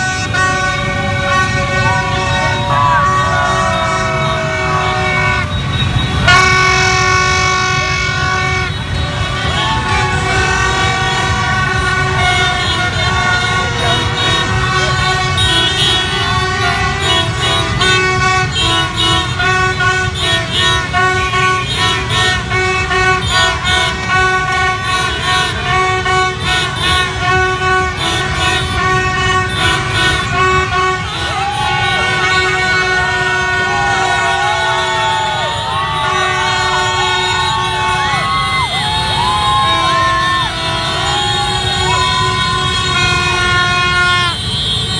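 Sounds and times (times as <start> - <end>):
plastic trumpets honking: 0.0 - 38.4, 39.0 - 44.9
motorbike horns honking: 0.0 - 44.9
people shouting and cheering: 0.9 - 6.4, 8.7 - 12.2, 30.6 - 43.5.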